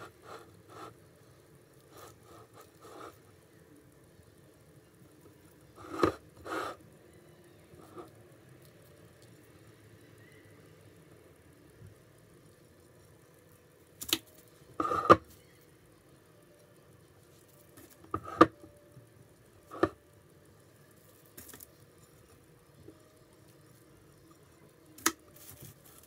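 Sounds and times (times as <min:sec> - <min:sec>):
parchment paper rustling: 0:25.3 - 0:26.0.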